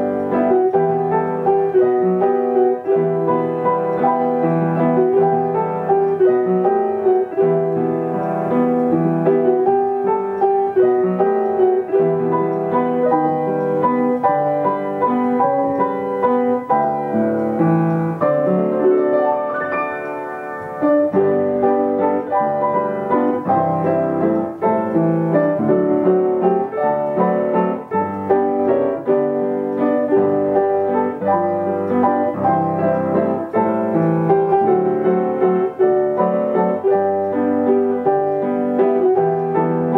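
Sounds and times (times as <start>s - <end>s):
upright piano playing songs: 0.0s - 39.9s.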